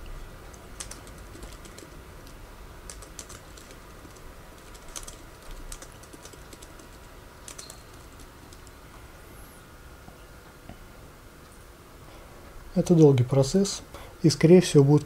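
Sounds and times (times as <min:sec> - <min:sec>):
computer keyboard key clicks: 0:00.5 - 0:01.9, 0:02.9 - 0:06.9, 0:07.5 - 0:08.7.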